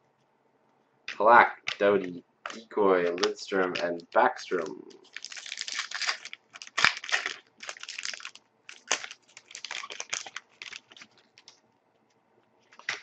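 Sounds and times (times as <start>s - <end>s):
foil wrapper rustling: 5.0s - 11.6s.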